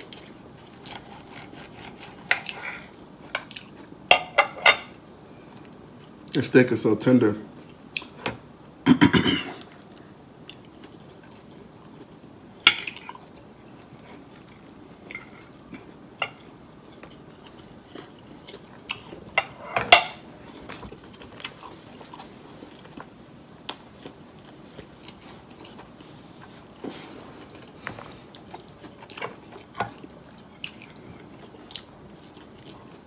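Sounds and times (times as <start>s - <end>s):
person chewing: 12.8s - 19.4s, 20.4s - 23.1s, 23.7s - 33.0s.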